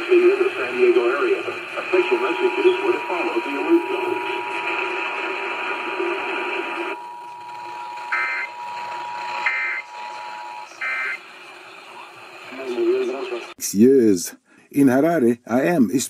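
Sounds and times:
fm radio programme audio: 0:00.0 - 0:16.0
warbling digital data tones: 0:01.8 - 0:11.2
two-tone alert signal: 0:06.9 - 0:11.2.

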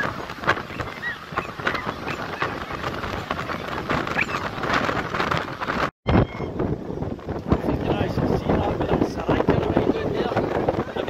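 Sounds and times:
splashing through waves: 0:00.0 - 0:05.9
surf breaking: 0:00.0 - 0:05.9.

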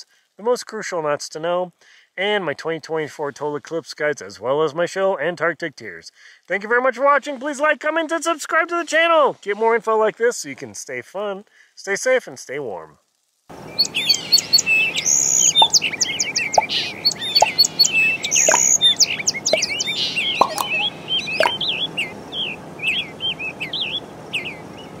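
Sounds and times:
small birds chirping in chorus: 0:13.5 - 0:25.0.

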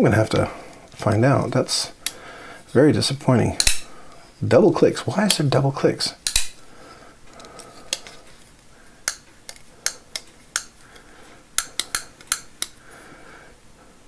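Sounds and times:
knife flipping metallic clicks: 0:03.6 - 0:03.9, 0:06.2 - 0:06.6, 0:11.6 - 0:12.8.

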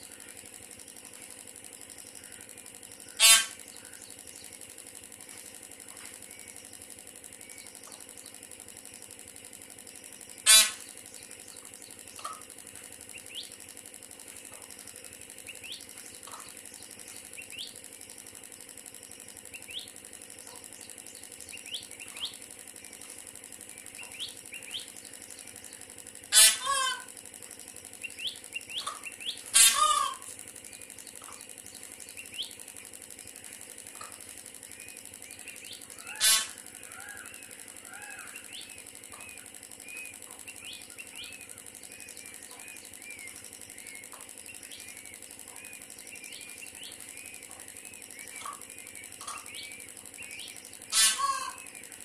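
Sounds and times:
high rising chick peeps: 0:00.0 - 0:52.0
peahen calling: 0:02.0 - 0:04.5, 0:10.3 - 0:13.6, 0:23.6 - 0:27.2, 0:27.9 - 0:32.8, 0:33.9 - 0:52.0.

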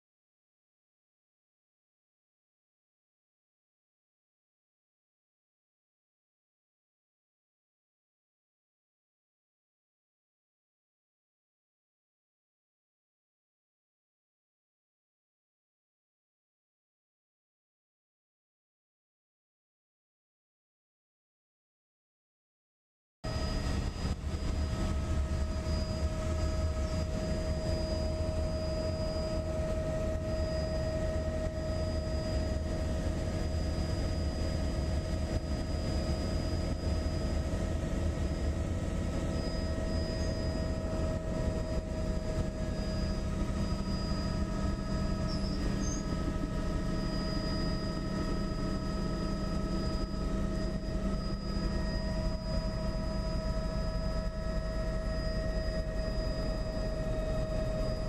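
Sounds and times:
constant whining tones: 0:23.3 - 0:58.0
helicopter engine and rotor rumble: 0:23.3 - 0:58.0.

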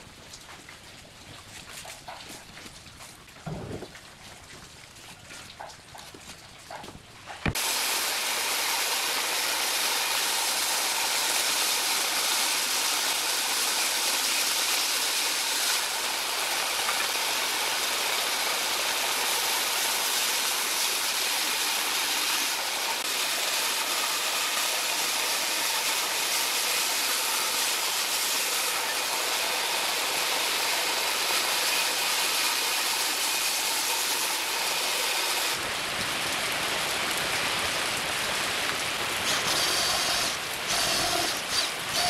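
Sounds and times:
band saw cutting wood: 0:07.5 - 0:35.6, 0:39.2 - 0:42.0.

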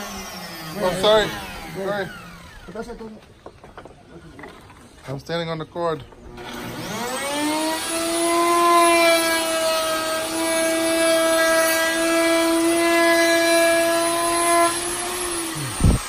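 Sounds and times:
trim router whining: 0:00.0 - 0:03.0, 0:06.2 - 0:16.0.

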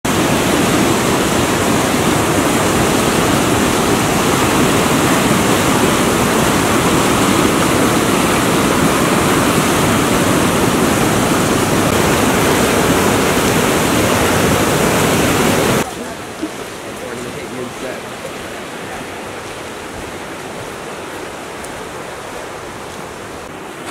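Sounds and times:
river rapids rushing over rocks: 0:00.1 - 0:23.9.

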